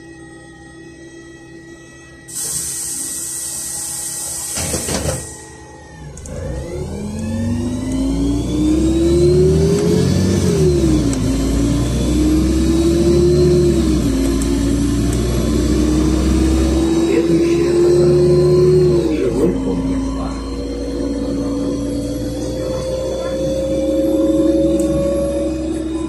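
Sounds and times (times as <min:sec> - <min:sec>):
compressed air hiss: 0:02.3 - 0:05.2
bus engine pulling away: 0:02.3 - 0:26.0.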